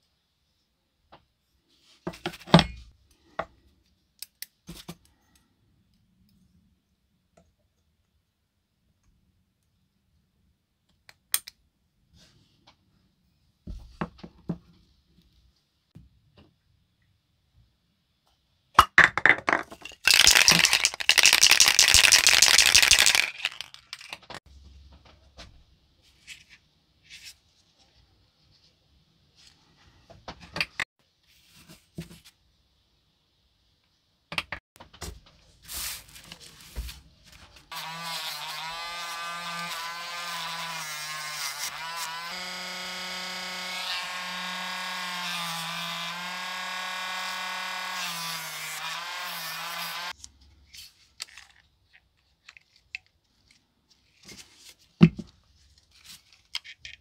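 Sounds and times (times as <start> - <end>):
spray can rattle: 20.0 - 24.2.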